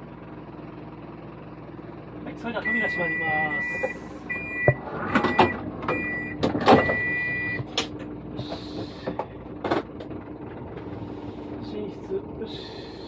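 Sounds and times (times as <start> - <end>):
engine idling hum: 0.0 - 13.0
electronic beep: 2.6 - 7.6.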